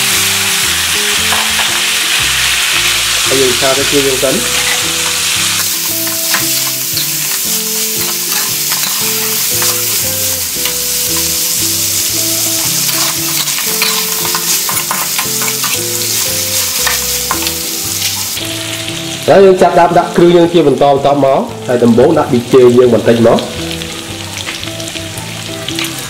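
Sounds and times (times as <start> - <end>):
meat sizzling in a wok: 0.0 - 26.0
metal spatula scraping a wok: 4.4 - 10.0, 10.7 - 17.4.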